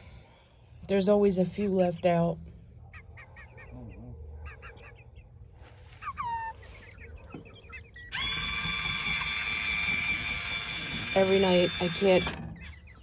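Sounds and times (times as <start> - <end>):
hens clucking: 2.8 - 10.0, 11.1 - 13.0
hen squawk: 2.9 - 8.4
electric motor whining: 8.1 - 12.5.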